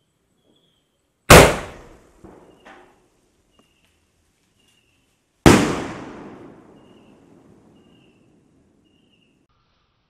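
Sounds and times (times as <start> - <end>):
firework bangs: 1.3 - 2.7, 5.5 - 8.2.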